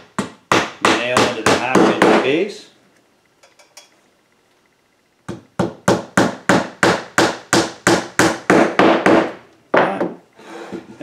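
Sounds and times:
hammer striking nail into wood: 0:00.1 - 0:02.3, 0:05.3 - 0:10.2.

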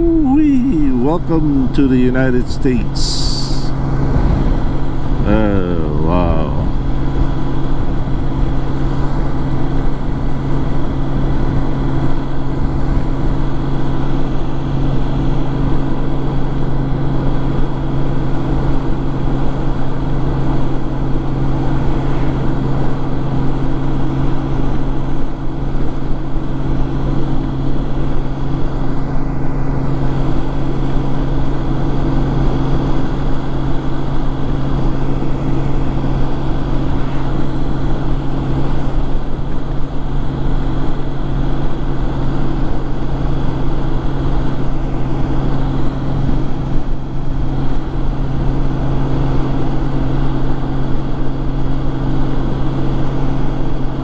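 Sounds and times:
motorcycle engine drone: 0:00.0 - 0:54.0
wind and road noise: 0:02.7 - 0:54.0.

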